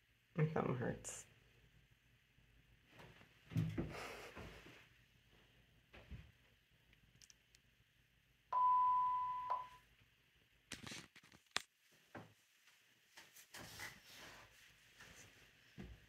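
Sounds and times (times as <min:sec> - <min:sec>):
electronic beep: 0:08.6 - 0:09.8.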